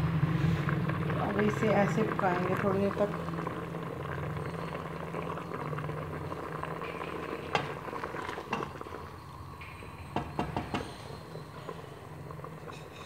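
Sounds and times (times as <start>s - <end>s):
broth bubbling at a boil: 0.0s - 13.0s
spoon knocking against pot: 10.2s - 11.0s.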